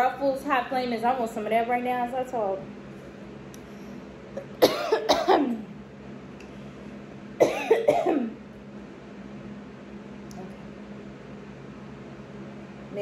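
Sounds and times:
woman coughing: 4.4 - 5.7, 7.4 - 8.4.

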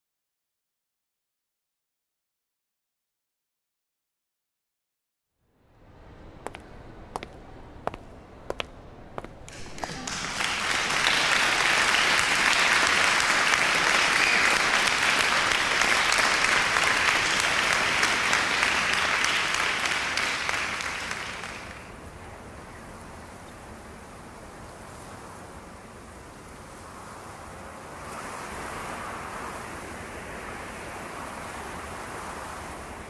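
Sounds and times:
low steady hiss: 5.4 - 33.0
many hands clapping: 9.4 - 21.9.

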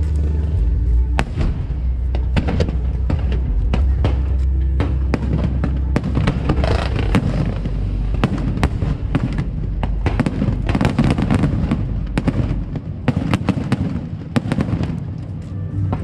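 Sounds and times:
deep rumble: 0.0 - 16.0
fireworks bangs and crackles: 0.7 - 16.0.

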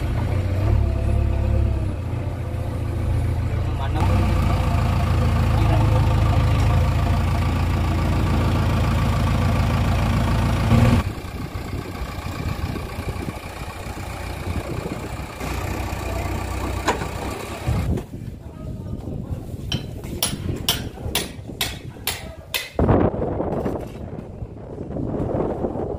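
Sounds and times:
diesel engine running under load: 0.0 - 18.0.

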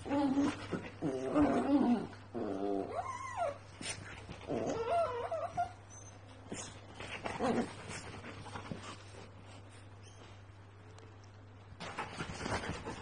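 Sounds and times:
dogs whining and yipping: 0.0 - 6.8.

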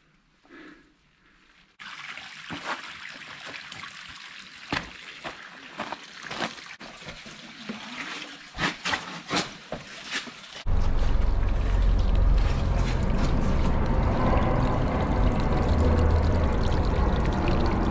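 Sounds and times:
footsteps on rock and gravel: 4.7 - 7.2
water rushing through rock canyon: 10.2 - 17.9.

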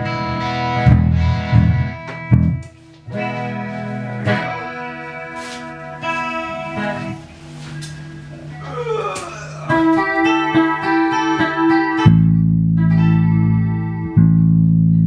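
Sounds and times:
low bass notes: 0.0 - 4.5, 9.3 - 15.0
electric guitars playing chords: 0.0 - 15.0.

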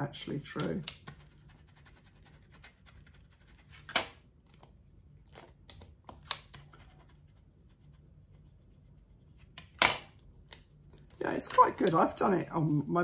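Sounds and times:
sharp scratches of decal: 1.0 - 3.9.

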